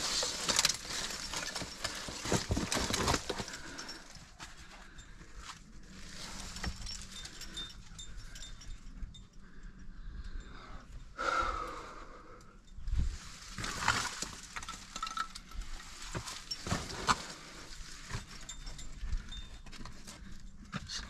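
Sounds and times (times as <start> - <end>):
climbing gear clinking: 0.0 - 11.2, 12.2 - 21.0.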